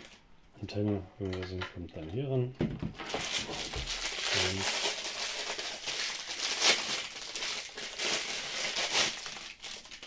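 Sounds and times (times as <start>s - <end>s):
plastic bag crinkling: 3.0s - 10.0s.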